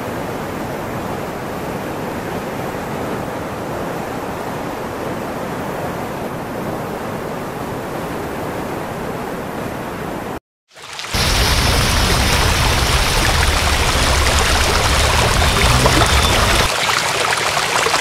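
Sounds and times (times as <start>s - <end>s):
rushing water: 10.7s - 18.0s.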